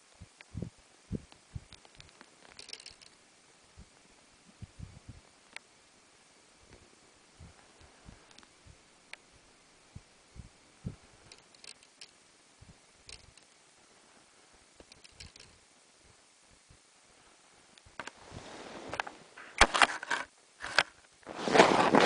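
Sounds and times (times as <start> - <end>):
soft low thumps: 0.2 - 2.1, 3.7 - 5.3, 6.6 - 8.9, 9.8 - 11.3, 12.6 - 12.9
faint scattered clicks: 1.2 - 3.2, 4.6 - 5.8, 7.5 - 9.3, 11.2 - 13.6, 14.8 - 15.6.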